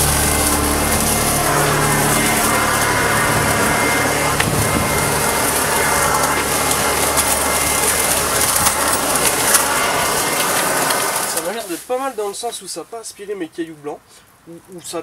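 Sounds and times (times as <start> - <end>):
blower-vacuum motor whine: 0.0 - 11.5.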